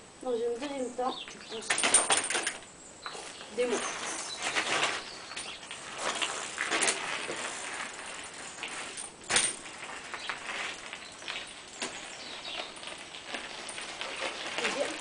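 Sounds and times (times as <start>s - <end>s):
bike landing clack: 1.6s - 15.0s
bike tyres crunching on gravel: 3.0s - 15.0s.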